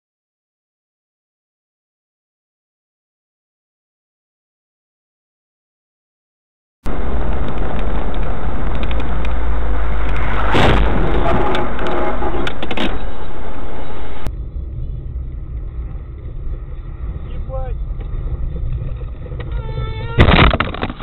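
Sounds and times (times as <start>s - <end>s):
car cabin road rumble: 6.8s - 21.0s
noisy burst: 6.9s - 21.0s.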